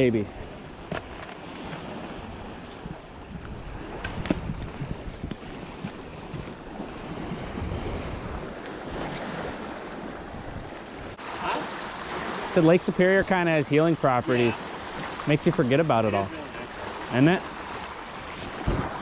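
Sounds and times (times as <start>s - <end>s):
wind buffeting microphone: 0.0s - 11.2s, 18.2s - 19.0s.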